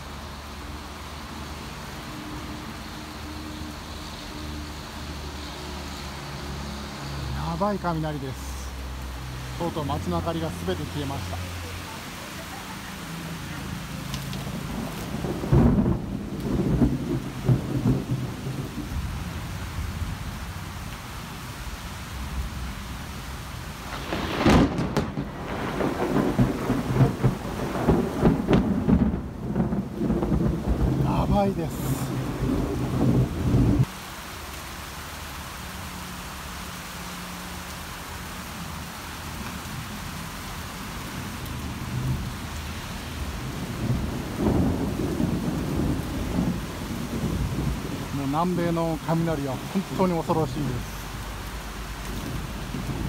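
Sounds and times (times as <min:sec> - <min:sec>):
steady rain: 0:00.0 - 0:53.0
thunder cracks and rumble: 0:14.1 - 0:20.2, 0:23.9 - 0:33.9, 0:41.1 - 0:50.0.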